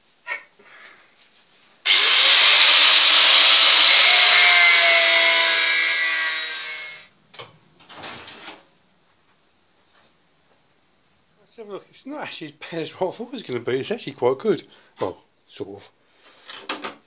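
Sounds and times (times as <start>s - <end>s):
angle grinder cutting metal: 1.9s - 7.1s.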